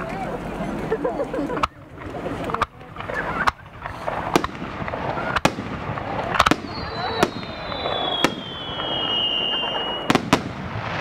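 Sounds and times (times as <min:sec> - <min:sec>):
crowd murmuring: 0:00.0 - 0:10.3
firework shells bursting: 0:02.5 - 0:11.0
whistling firework: 0:03.0 - 0:11.0.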